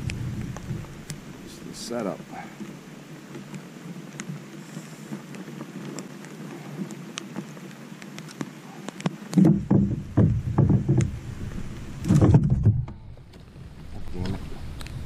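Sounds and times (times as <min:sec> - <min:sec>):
wind rumbling on microphone: 0:00.0 - 0:15.0
light clicks on kayak: 0:02.4 - 0:09.4
dull knocks on kayak: 0:09.4 - 0:11.3, 0:12.0 - 0:13.0.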